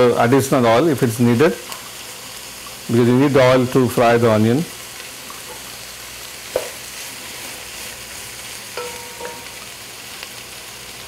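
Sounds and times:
onions sizzling in hot oil: 0:00.0 - 0:11.0
spoon stirring in a pan: 0:06.5 - 0:09.8
spoon clinking against pan: 0:08.8 - 0:09.7.

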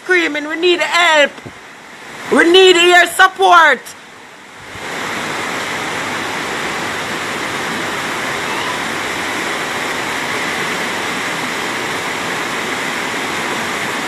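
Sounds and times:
floodwater rushing: 0:00.0 - 0:14.0.

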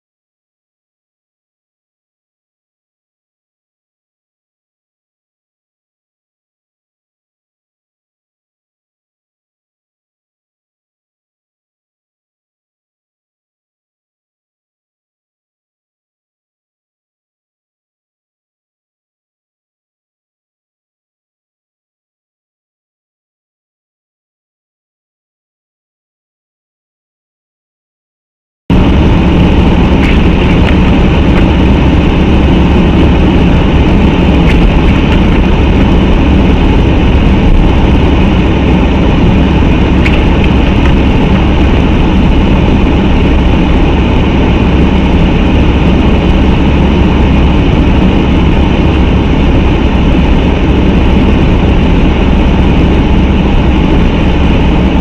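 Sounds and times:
car engine drone: 0:28.7 - 0:55.0
heavy low rumble: 0:28.7 - 0:55.0
tyre and road noise: 0:28.7 - 0:55.0.

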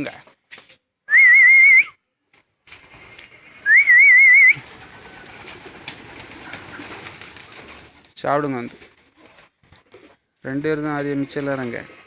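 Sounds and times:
loud warbling whistle: 0:01.1 - 0:02.0, 0:03.6 - 0:04.6.

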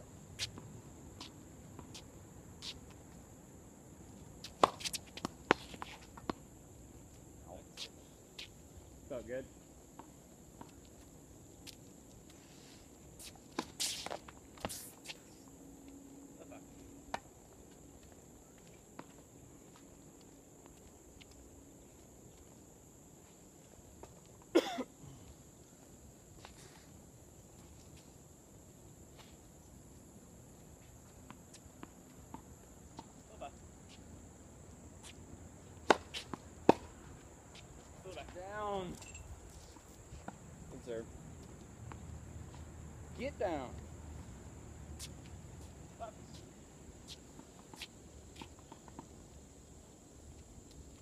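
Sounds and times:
high insect buzz: 0:00.0 - 0:18.2
racket hitting ball: 0:04.5 - 0:06.4, 0:35.8 - 0:36.9.

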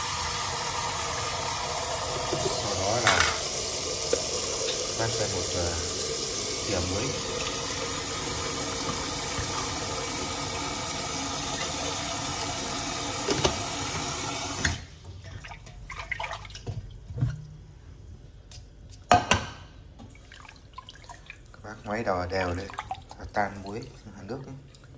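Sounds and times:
tap running into metal pot: 0:02.1 - 0:03.5, 0:08.7 - 0:09.9, 0:13.2 - 0:14.1
water splashes: 0:15.2 - 0:17.1, 0:20.1 - 0:24.9.

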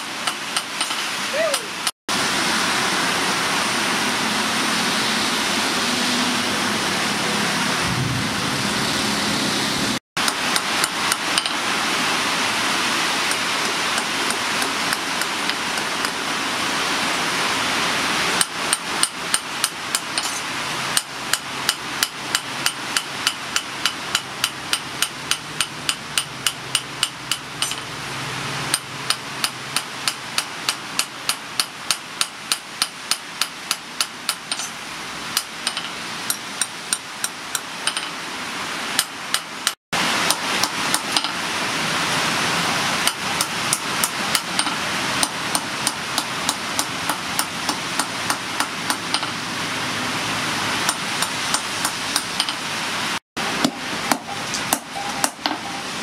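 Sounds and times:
hammer ringing on anvil: 0:53.6 - 0:56.0.

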